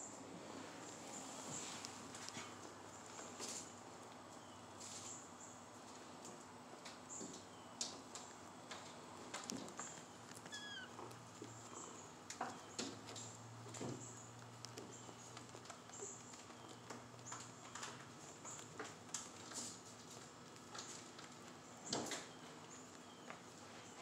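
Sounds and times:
kittens scuffling on concrete: 0.4 - 24.0
kitten squeak: 10.4 - 11.0.

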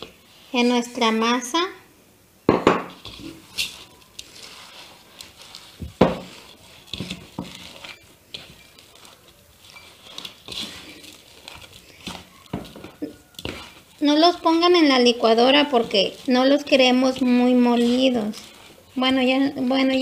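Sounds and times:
hands mixing dough rustling: 0.0 - 1.9, 2.7 - 20.0
knock: 2.5 - 2.9.

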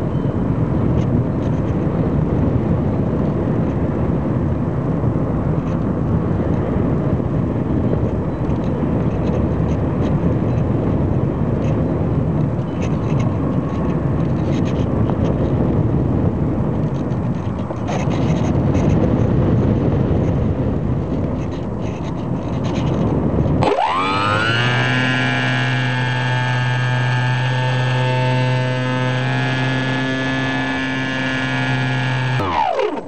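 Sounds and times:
model airplane motor whine: 21.3 - 33.0.

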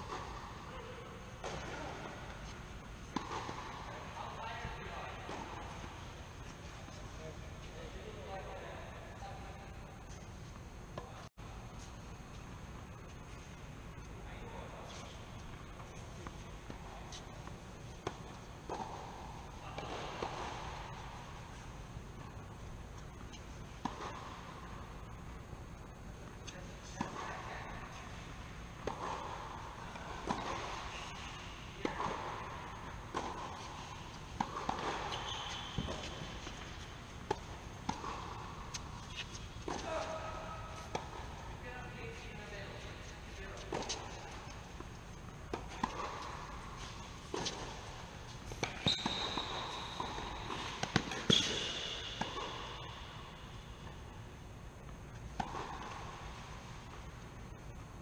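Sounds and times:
tennis balls struck and bouncing: 0.0 - 7.2, 9.6 - 58.0
high squeals: 34.8 - 36.4, 48.7 - 51.8.

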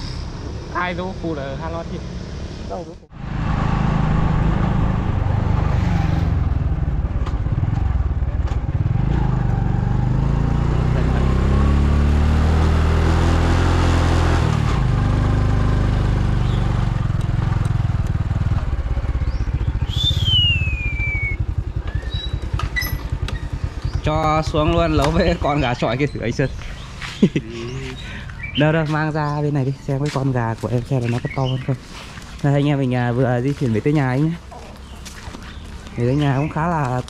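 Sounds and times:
road noise: 0.0 - 37.0
motorbike engine running: 6.5 - 12.4, 14.9 - 28.5.

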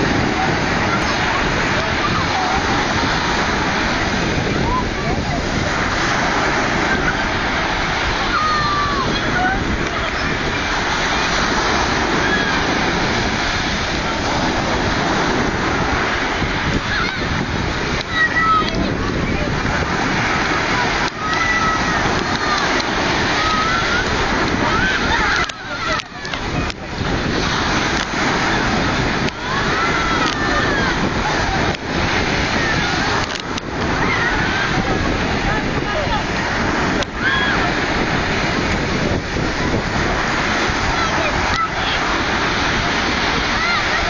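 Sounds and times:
faint voices calling out: 0.0 - 44.0
waves washing over pebble beach: 0.0 - 44.0
wind noise on microphone: 0.0 - 44.0.

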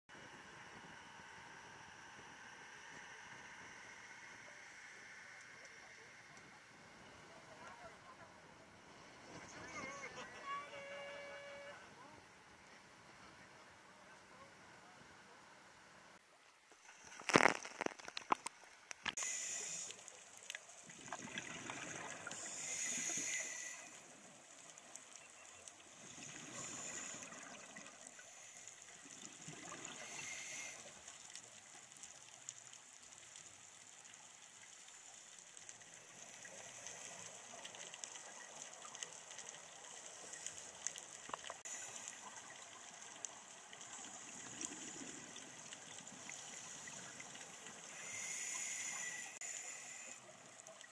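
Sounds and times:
water sloshing underwater: 16.7 - 50.9.

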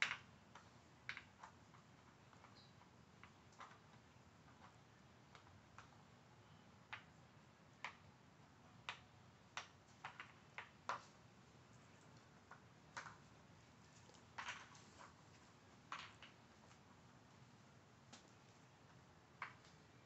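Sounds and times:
plastic puzzle toy clicking: 0.0 - 5.9.

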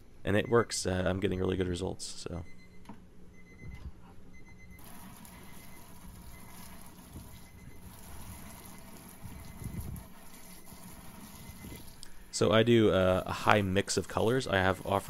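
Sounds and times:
water splashing into bucket: 4.8 - 12.0
water spraying from nozzle: 4.8 - 12.0.

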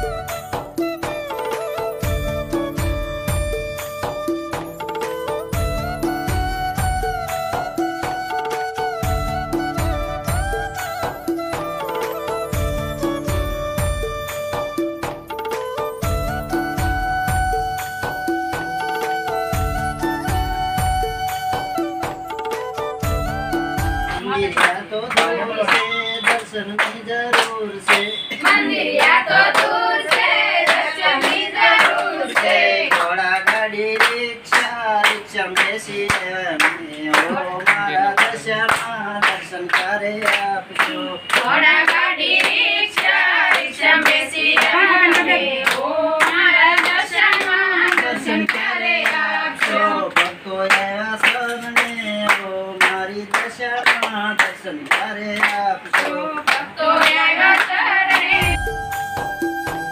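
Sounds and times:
hands clapping in a steady beat: 0.0 - 59.9
group singing a devotional song: 24.3 - 51.6, 52.8 - 58.6.

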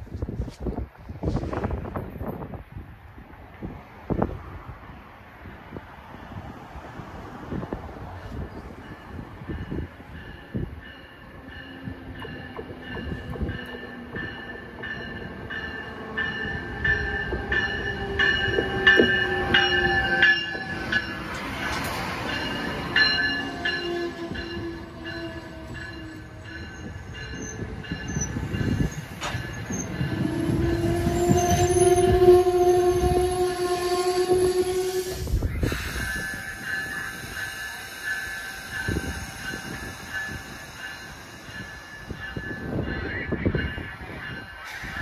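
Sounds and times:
train wheels rumbling over rails: 5.4 - 45.0
rail clicks: 7.6 - 45.0
steady ringing tones: 35.0 - 45.0.

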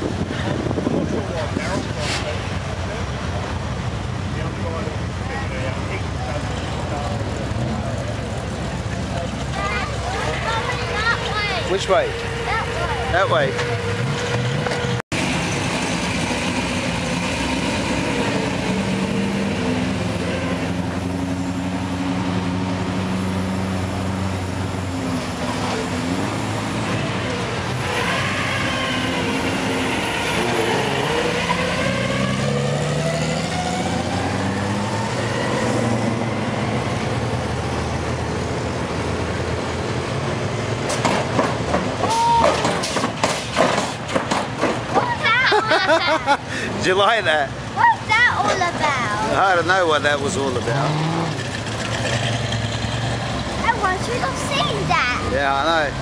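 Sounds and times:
car engines passing and revving: 0.0 - 56.0
knocks and rustles: 40.8 - 45.2.

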